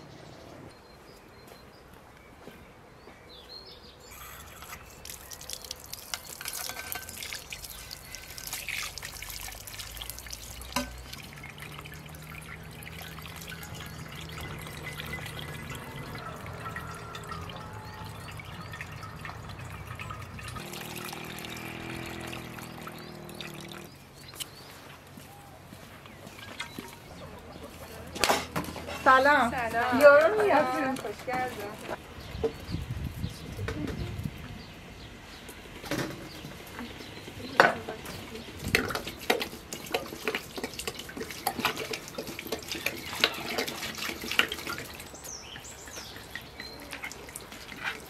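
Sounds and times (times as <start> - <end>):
water pouring into a jug: 4.1 - 23.9, 38.6 - 48.0.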